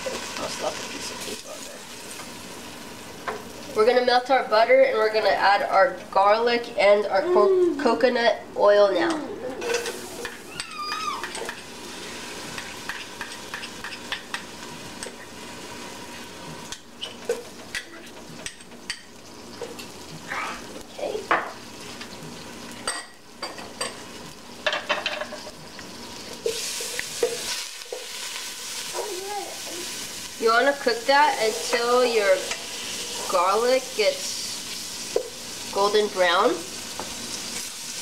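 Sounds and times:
butter and garlic sizzling in pot: 0.0s - 7.4s, 8.0s - 38.0s.

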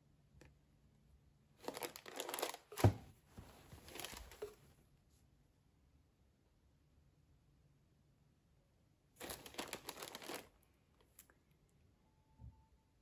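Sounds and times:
packaging rustling and crinkling: 1.6s - 4.6s, 9.2s - 10.6s.

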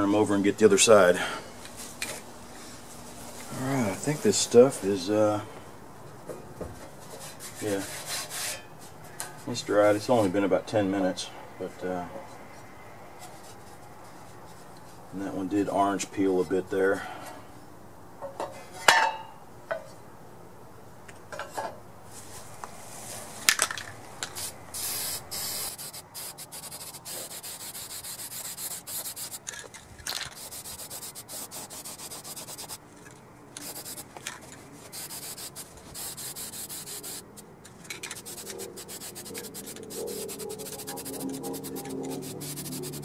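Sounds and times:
aerosol can spraying: 24.4s - 29.4s, 30.4s - 32.8s, 33.6s - 34.1s, 34.9s - 37.4s, 38.1s - 43.0s.

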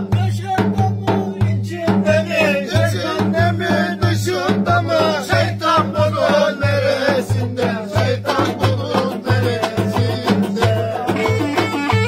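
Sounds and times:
drum beating steady rhythm: 0.0s - 12.0s
men singing: 0.0s - 12.0s
strummed lute: 11.0s - 12.0s.

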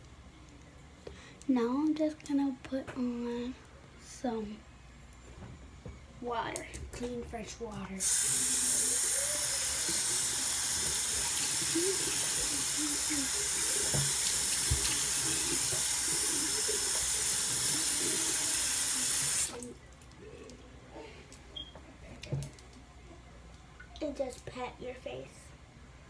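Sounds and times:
tap running into basin: 8.0s - 19.7s.

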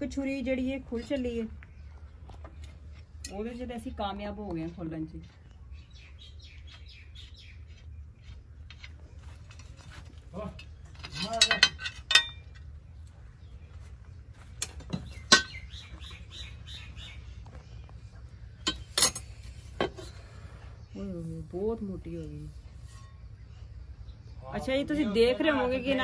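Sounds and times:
birds chirping faintly: 0.0s - 26.0s
metal clinks and clanks: 10.5s - 12.7s.

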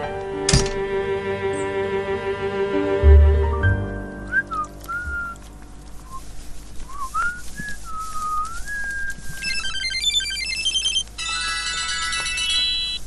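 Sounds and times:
person whistling: 4.2s - 5.4s, 6.9s - 9.4s
mobile phone ringtone: 9.4s - 13.0s.

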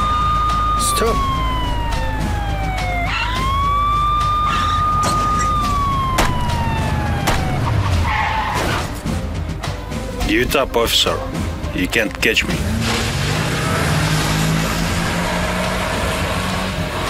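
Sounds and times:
police siren wailing: 0.0s - 8.8s.

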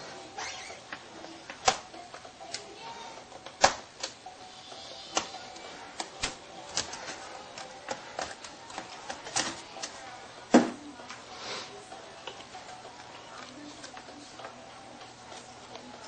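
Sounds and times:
sharp plastic snap: 1.6s - 1.8s, 3.6s - 4.2s.

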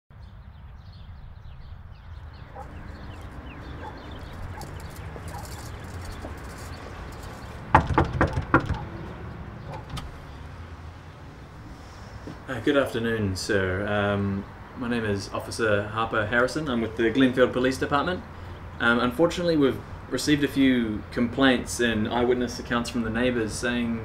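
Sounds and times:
knocking on a door: 7.7s - 9.0s.

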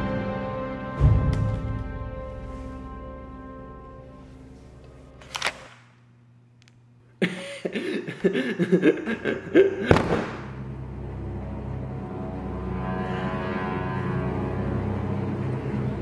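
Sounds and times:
person laughing loudly: 7.2s - 10.1s.

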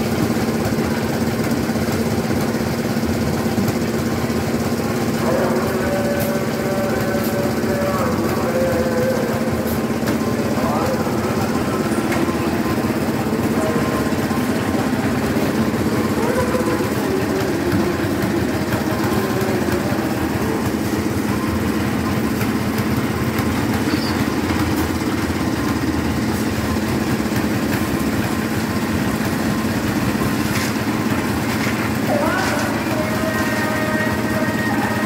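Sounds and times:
concrete mixer engine running: 0.0s - 35.0s.

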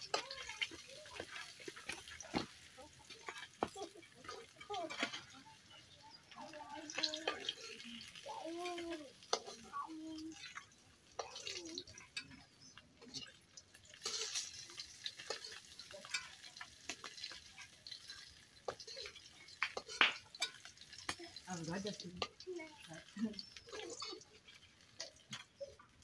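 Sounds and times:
food sizzling and frying: 0.0s - 26.0s
metal spatula scraping a wok: 6.9s - 21.4s.

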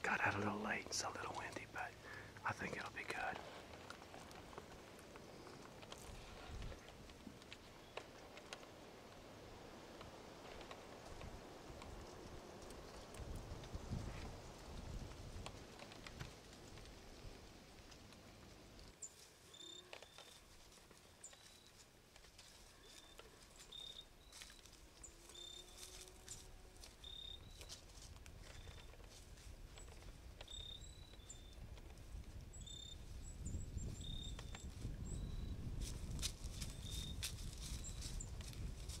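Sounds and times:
soft clicks and rustles: 0.3s - 33.3s, 33.9s - 39.0s
wind noise: 11.0s - 16.3s, 31.5s - 39.0s.

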